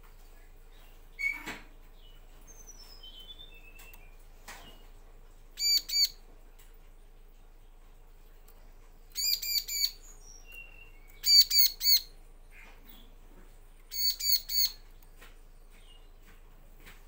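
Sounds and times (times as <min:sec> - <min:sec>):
bird calling: 0:05.6 - 0:06.2, 0:09.1 - 0:13.1, 0:13.9 - 0:14.8.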